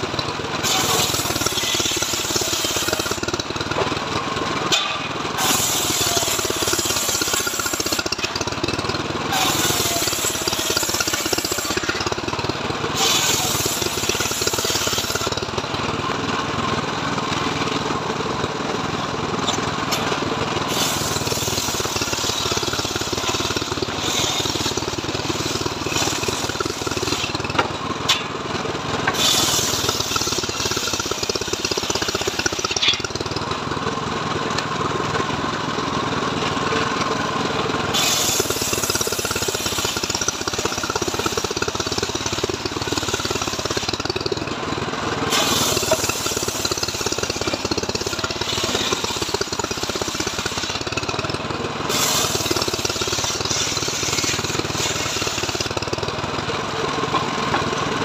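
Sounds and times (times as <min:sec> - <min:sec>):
saw engine running: 0:00.0 - 0:58.0
saw blade hissing through wood: 0:00.6 - 0:03.3, 0:05.4 - 0:08.2, 0:09.3 - 0:12.1, 0:12.9 - 0:15.4, 0:20.6 - 0:27.4, 0:29.1 - 0:32.8, 0:37.9 - 0:44.1, 0:45.3 - 0:50.9, 0:51.9 - 0:55.7.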